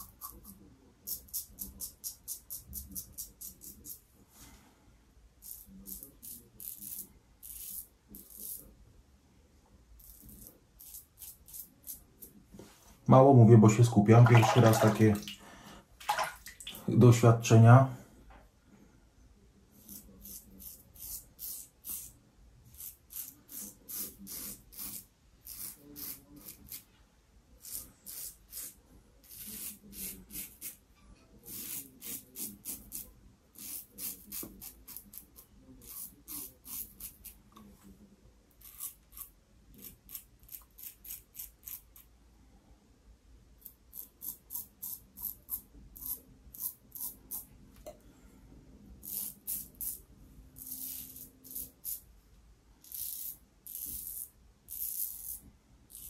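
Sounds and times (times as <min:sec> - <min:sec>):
razor scraping stubble: 0:19.8 - 0:26.9, 0:27.6 - 0:30.8, 0:31.5 - 0:37.4, 0:38.6 - 0:42.0, 0:50.6 - 0:52.0.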